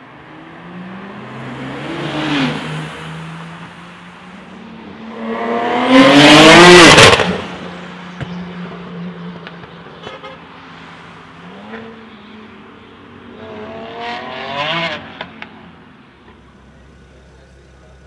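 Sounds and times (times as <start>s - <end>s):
car engine accelerating hard: 5.0s - 7.7s.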